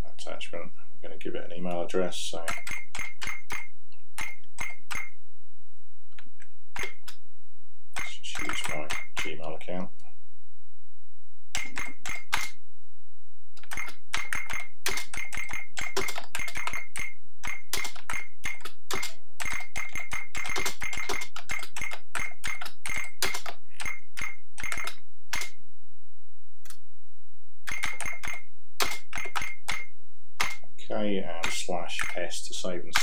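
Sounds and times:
rapid typing on clicky keyboard: 2.4s - 5.1s, 6.8s - 7.1s, 8.0s - 9.4s, 11.6s - 12.5s, 13.6s - 25.5s, 27.7s - 30.6s, 31.4s - 32.3s.

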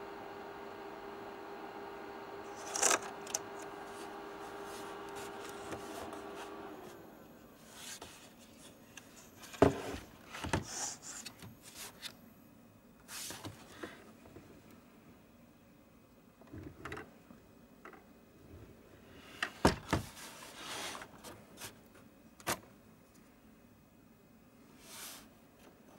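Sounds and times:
small motor humming: 0.0s - 7.4s.

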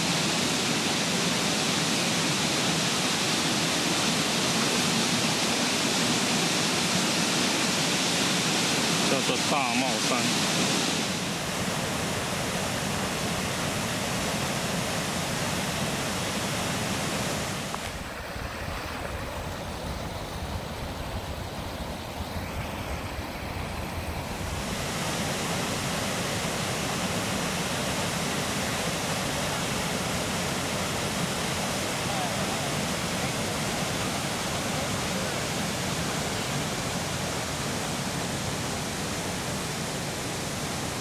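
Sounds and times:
waterfall rushing: 0.0s - 41.0s
low wind rumble: 17.4s - 27.2s.

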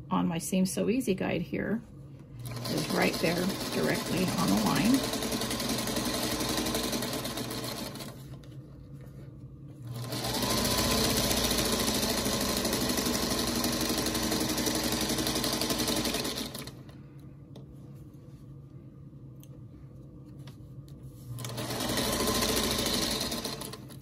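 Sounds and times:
sewing machine stitching: 2.4s - 8.3s, 9.9s - 16.8s, 21.4s - 24.0s.

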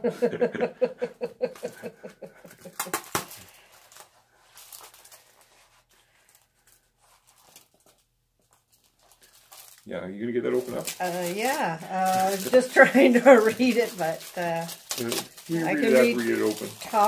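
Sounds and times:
people laughing: 0.0s - 2.9s.

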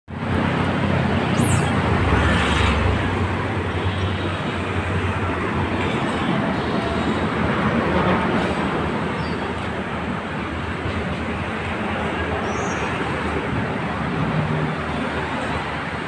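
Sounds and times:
road traffic rumble: 0.1s - 16.0s
heavy vehicle passing: 0.3s - 5.8s.

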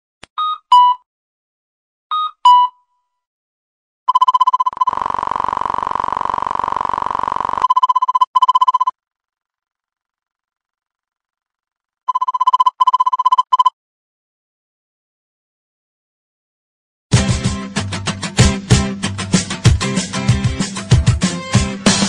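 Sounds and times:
harsh continuous alarm buzz: 4.8s - 7.8s
rapidly pulsing alarm beep: 7.0s - 8.9s.

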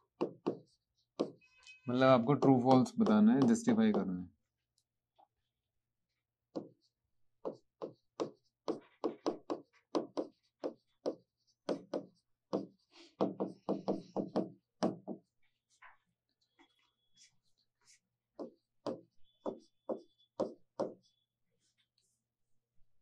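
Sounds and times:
chalk tapping on a blackboard: 0.2s - 1.4s, 2.3s - 4.1s, 6.5s - 15.9s, 18.4s - 21.1s.

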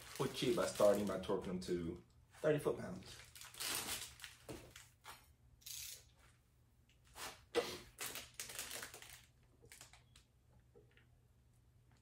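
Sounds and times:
ratchet wrench clicking: 5.6s - 6.0s.

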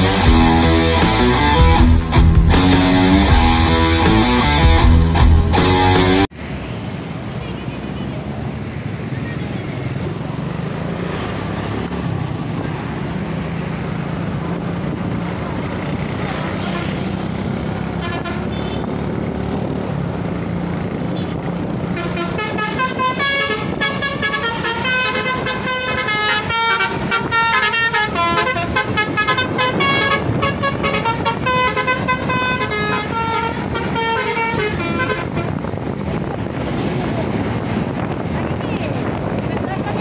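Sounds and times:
road noise: 0.0s - 40.0s
musical horn toots: 22.0s - 35.6s.

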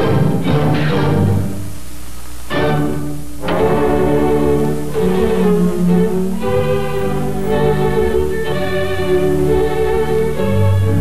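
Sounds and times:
orchestral strings melody: 0.0s - 1.6s, 2.5s - 11.0s.

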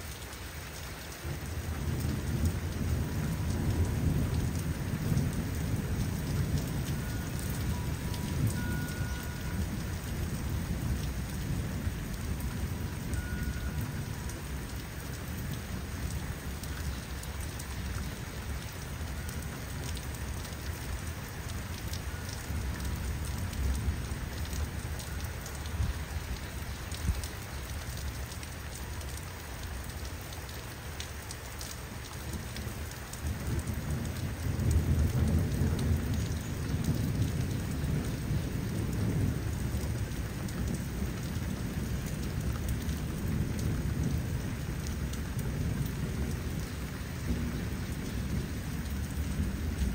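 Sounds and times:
steady rain falling: 0.0s - 49.9s
low thunder rumbling: 1.3s - 19.7s, 32.6s - 49.9s.

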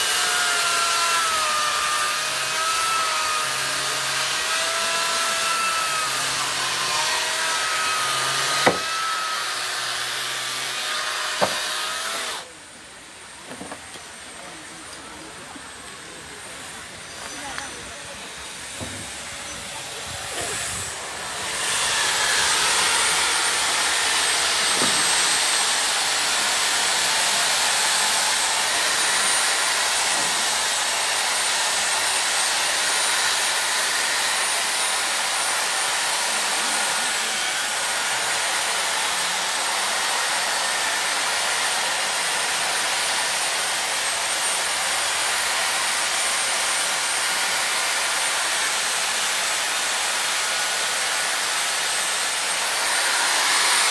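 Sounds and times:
power tool cutting ice: 0.0s - 12.6s, 13.5s - 53.9s.

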